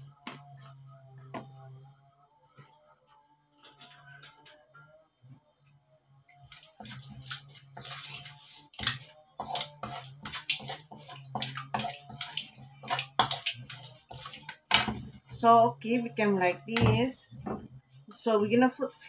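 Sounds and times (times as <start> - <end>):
spatula scraping a wok: 6.7 - 15.7.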